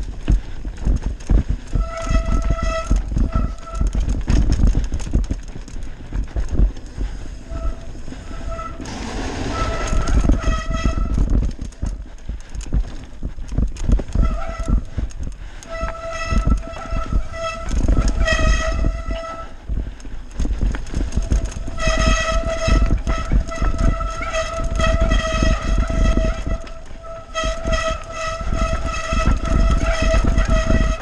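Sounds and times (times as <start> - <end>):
bike tyres and wind rumbling: 0.0 - 31.0
disc brakes squealing: 7.2 - 11.2.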